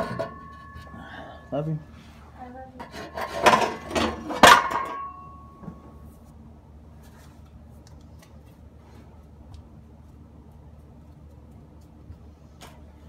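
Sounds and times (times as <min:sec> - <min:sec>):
metal pipe clanking on concrete: 0:00.0 - 0:01.5, 0:02.8 - 0:05.8.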